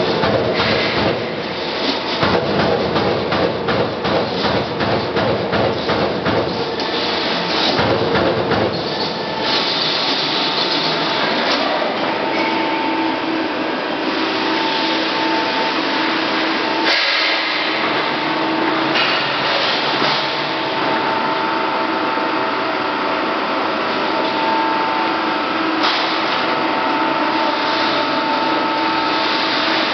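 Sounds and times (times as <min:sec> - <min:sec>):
punch press punching metal: 0:02.1 - 0:07.0, 0:07.7 - 0:09.1.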